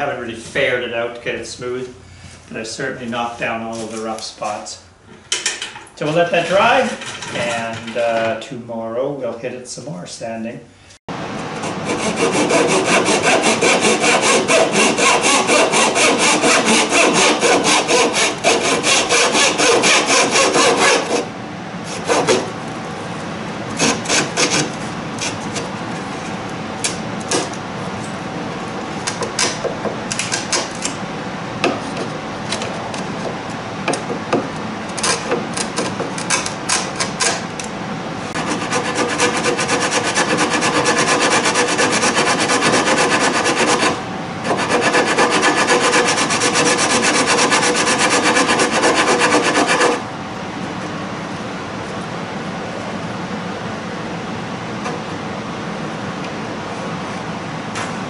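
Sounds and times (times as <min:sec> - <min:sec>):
scraping on wood: 0:11.6 - 0:21.3, 0:38.4 - 0:50.0
sanding block on wood: 0:11.7 - 0:21.3, 0:38.4 - 0:50.0.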